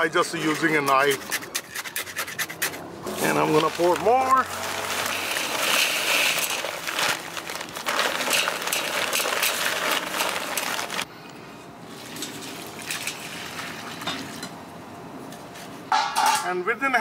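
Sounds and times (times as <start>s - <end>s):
concrete mix pouring hiss: 3.1s - 11.1s
paper bag crinkling: 3.1s - 11.1s.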